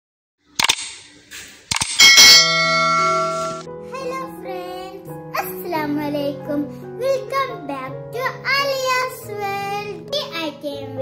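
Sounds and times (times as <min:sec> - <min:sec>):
sharp clicks: 0:00.6 - 0:02.2
bright bell ding: 0:02.0 - 0:03.7.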